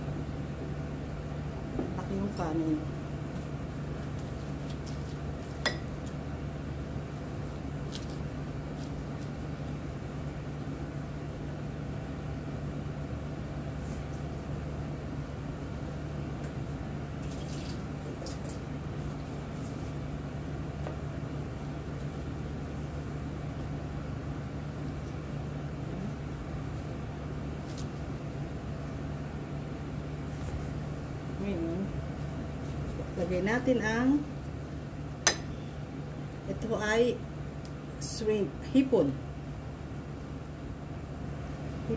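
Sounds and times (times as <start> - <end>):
steady low hum: 0.0 - 41.9
water splashing at a sink: 17.2 - 18.7.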